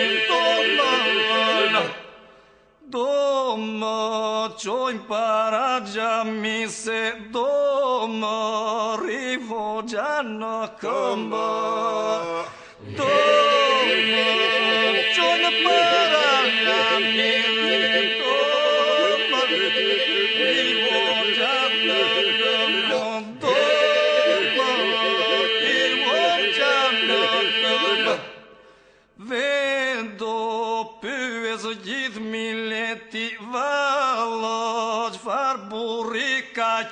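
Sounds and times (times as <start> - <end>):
lead voice singing: 0.0 - 2.2, 10.2 - 28.5
group singing a drone: 0.0 - 2.4, 12.8 - 28.7.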